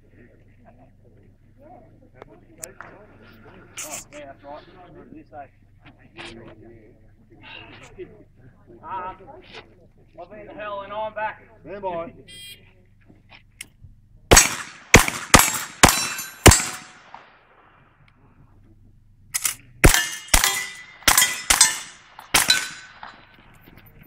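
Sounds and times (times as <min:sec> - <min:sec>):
steel targets ringing: 0:15.4 - 0:17.0, 0:19.4 - 0:23.3.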